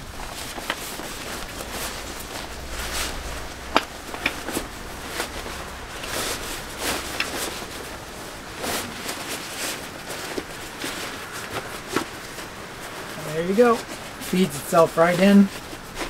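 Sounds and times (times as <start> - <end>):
nylon fabric rustling: 0.0 - 16.0.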